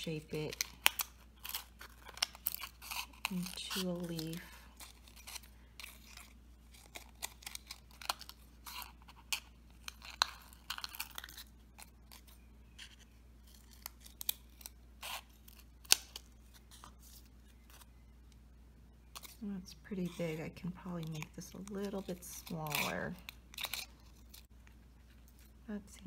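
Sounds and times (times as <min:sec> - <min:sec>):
plastic crackling: 0:00.0 - 0:18.1, 0:19.1 - 0:26.0
scissors snipping plastic: 0:20.0 - 0:24.5.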